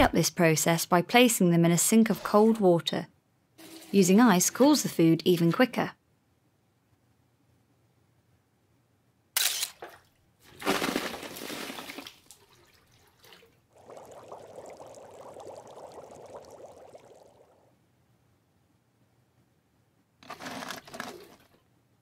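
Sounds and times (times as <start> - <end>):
water splashing pour: 3.6 - 4.0, 9.8 - 17.7
ice cubes clattering into sink: 10.5 - 12.2.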